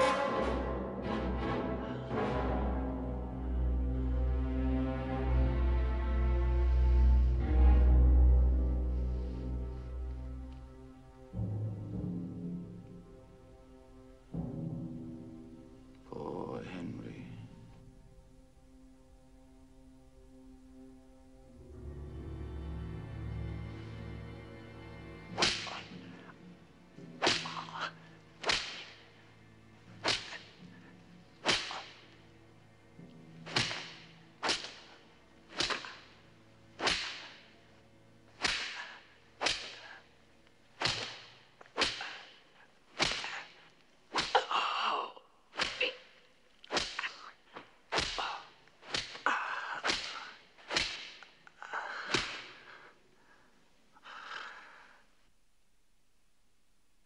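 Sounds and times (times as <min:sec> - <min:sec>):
low music drone: 0:00.0 - 0:43.7
whip cracking: 0:25.3 - 0:26.0, 0:27.2 - 0:29.1, 0:29.9 - 0:30.7, 0:31.4 - 0:32.2, 0:33.4 - 0:36.2, 0:36.8 - 0:37.6, 0:38.3 - 0:40.0, 0:40.8 - 0:44.5, 0:45.5 - 0:51.5, 0:52.1 - 0:52.6.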